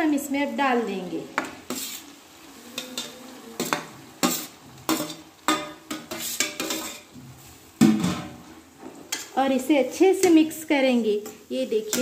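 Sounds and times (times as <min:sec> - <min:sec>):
metal spatula scraping pan: 0:01.6 - 0:07.2.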